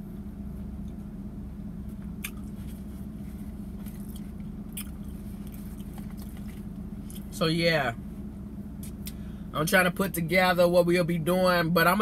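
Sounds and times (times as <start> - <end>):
low car cabin hum: 0.0 - 12.0
person chewing food: 2.1 - 7.3.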